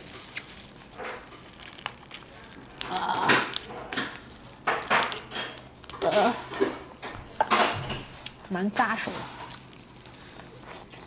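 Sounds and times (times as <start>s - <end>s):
crab shell cracking: 0.0s - 8.4s, 9.4s - 11.0s
plastic gloves crinkling: 0.0s - 11.0s.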